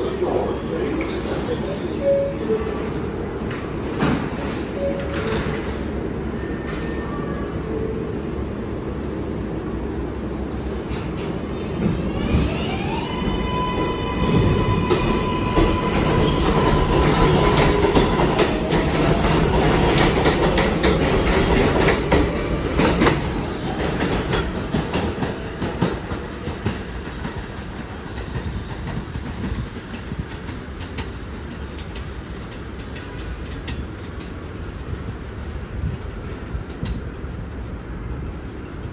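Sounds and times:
subway train wheels clacking: 0.0s - 38.9s
train rumble: 10.0s - 38.9s.

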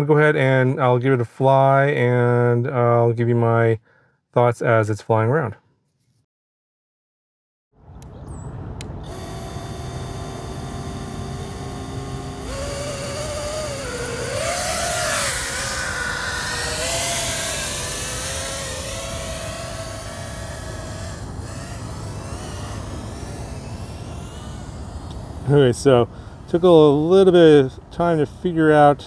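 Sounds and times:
drone motors buzzing whine: 8.6s - 26.6s.

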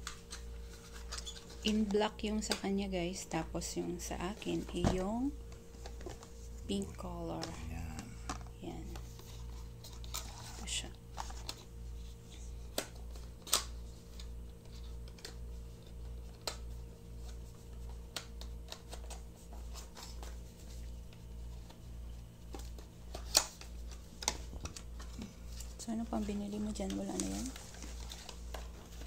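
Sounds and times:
plastic bags rustling: 23.6s - 29.0s.

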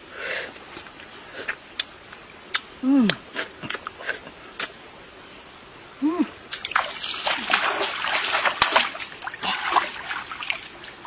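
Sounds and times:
hands splashing in water: 6.6s - 11.0s.

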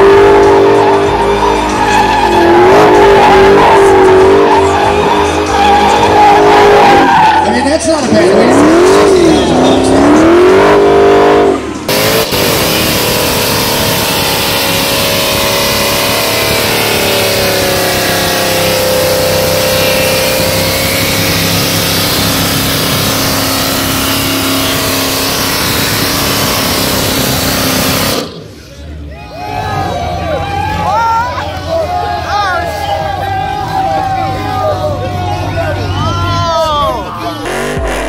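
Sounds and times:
car engine revving high: 0.0s - 7.4s, 8.0s - 28.6s, 37.4s - 38.0s.

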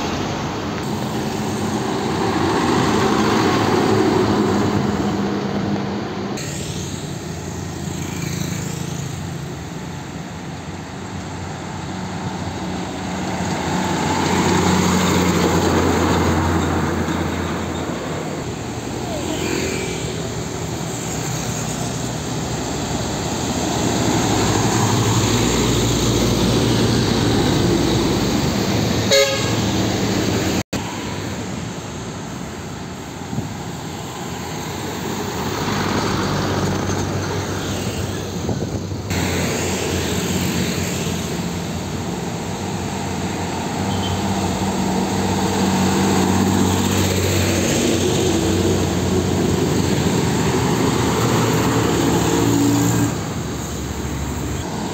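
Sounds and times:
heavy trucks passing: 0.0s - 54.9s
vehicle horn toot: 29.1s - 29.7s.

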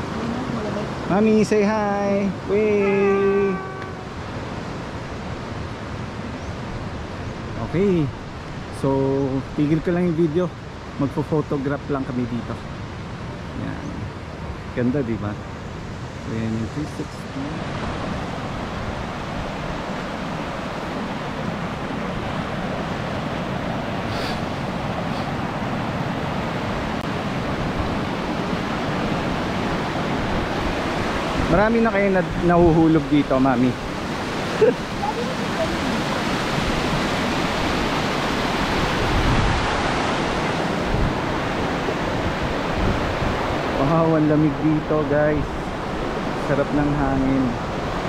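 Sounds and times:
falling water rushing: 0.0s - 5.8s, 14.8s - 48.0s
wind buffeting microphone: 17.6s - 43.8s.

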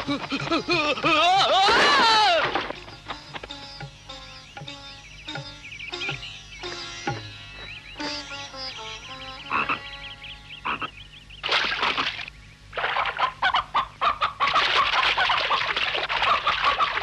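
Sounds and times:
chickens squawking and clucking: 12.8s - 17.0s.

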